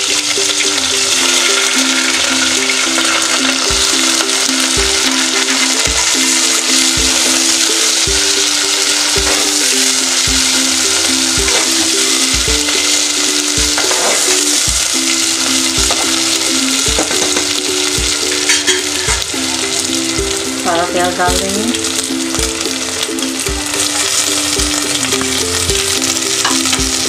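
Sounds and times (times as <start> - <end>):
metal spatula stirring in pot: 0.0 - 19.9
background music with steady beat: 0.0 - 27.0
onions sizzling in oil: 0.0 - 27.0.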